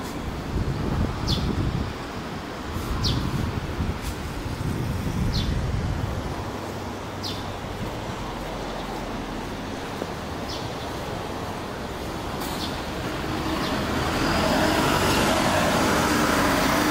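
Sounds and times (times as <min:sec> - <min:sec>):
bus engine and drivetrain whine: 0:00.0 - 0:16.9.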